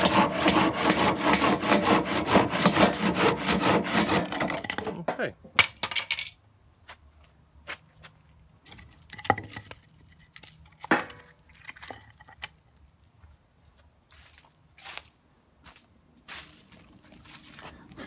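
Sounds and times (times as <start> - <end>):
wood knocks and clinks: 4.1 - 6.3.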